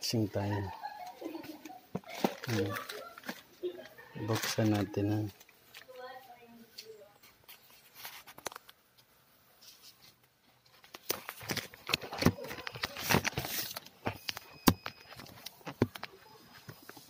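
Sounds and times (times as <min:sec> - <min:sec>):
plastic bag rustling and crackling: 0:02.0 - 0:06.6, 0:10.7 - 0:17.0.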